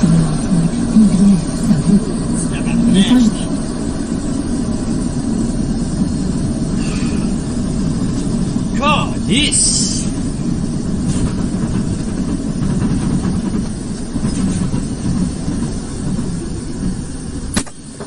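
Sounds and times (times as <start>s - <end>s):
vehicle engine rumble and road noise: 0.0s - 18.0s.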